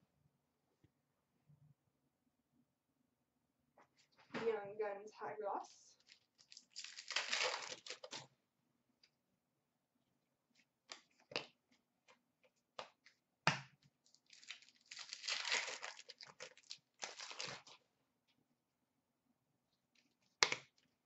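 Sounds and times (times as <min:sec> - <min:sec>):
foil wrapper tearing and crinkling: 0:06.0 - 0:08.3, 0:14.0 - 0:17.8.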